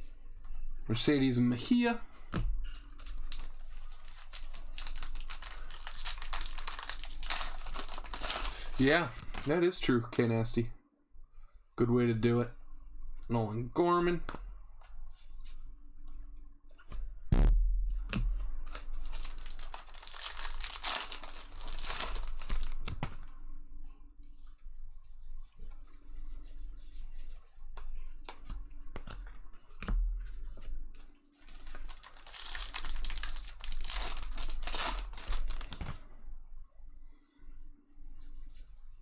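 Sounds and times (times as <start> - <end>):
wrappers tearing and crinkling: 2.9 - 9.6, 18.7 - 22.9, 31.4 - 36.0.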